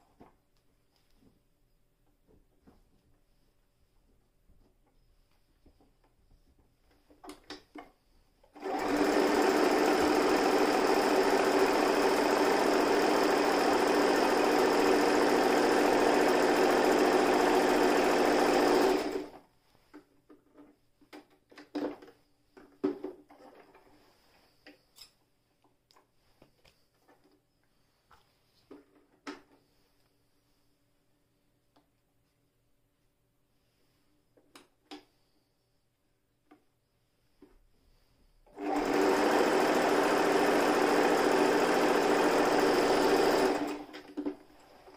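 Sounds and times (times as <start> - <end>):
sewing machine stitching: 8.5 - 19.4, 38.5 - 44.9.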